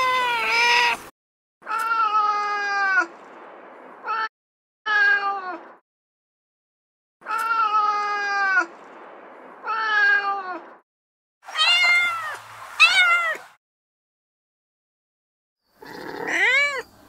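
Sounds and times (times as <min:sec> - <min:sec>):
recorded cat meows: 0:00.0 - 0:03.1, 0:04.9 - 0:05.8, 0:07.2 - 0:08.7, 0:09.6 - 0:10.8, 0:11.5 - 0:13.5, 0:15.8 - 0:16.9.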